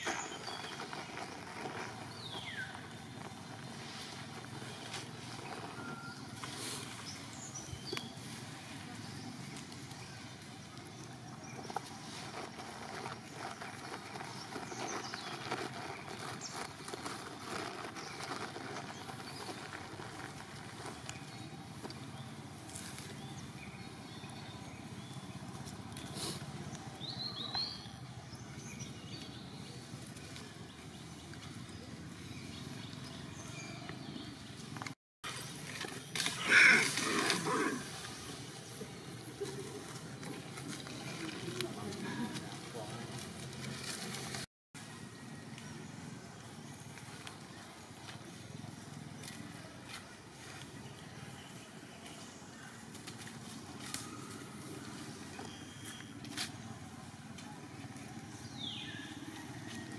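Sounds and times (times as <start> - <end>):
outdoor background noise: 0.0 - 59.9
brief tone: 5.8 - 6.4.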